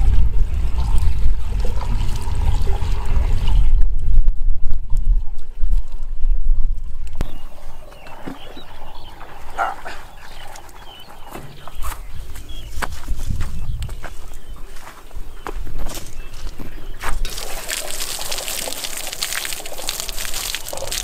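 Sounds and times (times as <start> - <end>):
water pouring into pipe: 0.0 - 3.8, 17.2 - 21.0
wind on microphone: 0.0 - 17.6
bucket splashing into water: 17.2 - 21.0.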